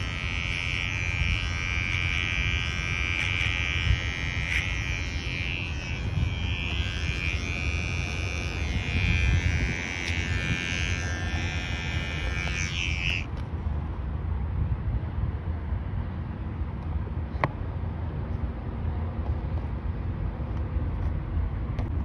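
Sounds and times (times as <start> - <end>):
hair trimmer whining: 0.0 - 13.4.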